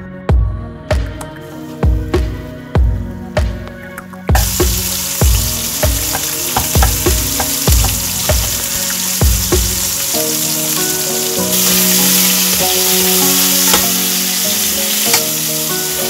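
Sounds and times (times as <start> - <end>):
background music with thumping beat: 0.0 - 16.0
food sizzling in a pan: 4.3 - 16.0.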